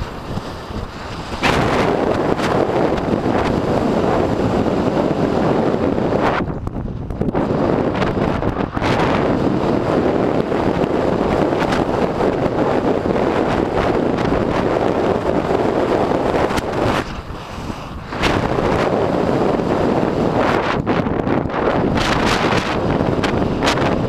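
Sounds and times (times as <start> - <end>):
wind noise on microphone: 0.0 - 24.0.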